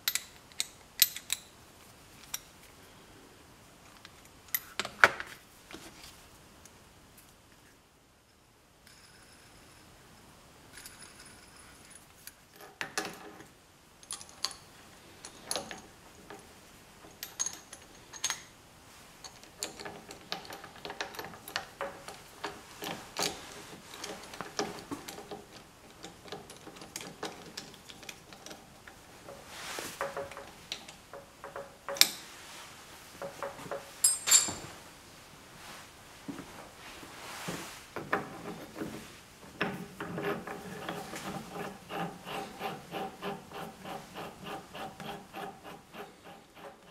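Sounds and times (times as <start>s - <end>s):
metal tool parts clinking: 34.0s - 34.6s.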